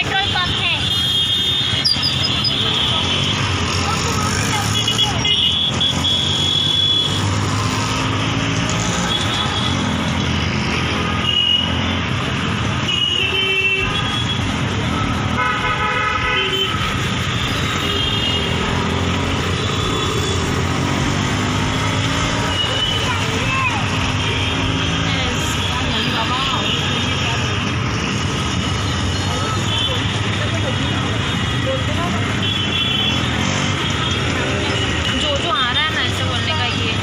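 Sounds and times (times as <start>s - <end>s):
vehicle horns honking: 0.0s - 3.5s, 4.3s - 7.4s, 11.1s - 11.9s, 12.8s - 14.5s, 15.3s - 18.9s
engine and road noise: 0.0s - 37.0s.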